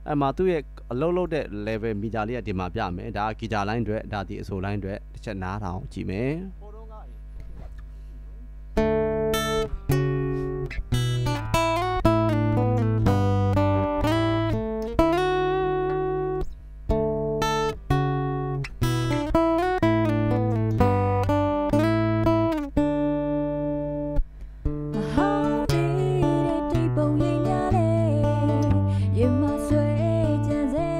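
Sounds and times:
steady low hum: 0:00.0 - 0:30.9
guitar chords ringing: 0:08.8 - 0:30.9.

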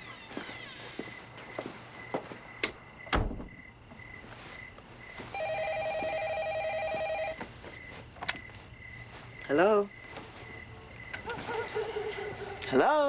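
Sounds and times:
loud thump: 0:03.1 - 0:03.6
telephone ringing electronic trill: 0:05.4 - 0:07.4.

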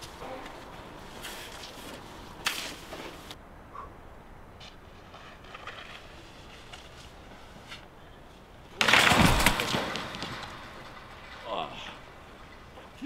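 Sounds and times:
skier crashing onto snow: 0:02.4 - 0:03.4, 0:05.0 - 0:07.8, 0:08.7 - 0:12.0
skis scraping on snow: 0:04.6 - 0:07.9.

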